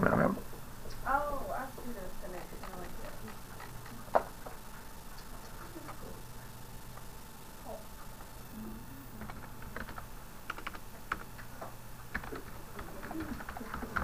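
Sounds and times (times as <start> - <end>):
low electrical hum: 0.0 - 14.0
typing on computer keyboard: 9.2 - 11.5, 12.1 - 14.0.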